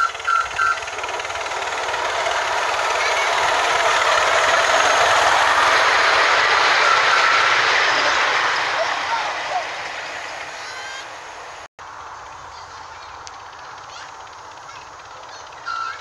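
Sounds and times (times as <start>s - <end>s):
train wheels clattering on rails: 0.0s - 11.7s
short high train toot: 10.4s - 11.2s.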